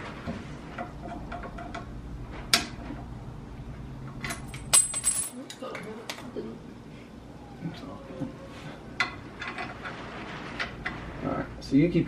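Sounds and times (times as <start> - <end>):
metal parts clicking and clinking: 4.2 - 5.4.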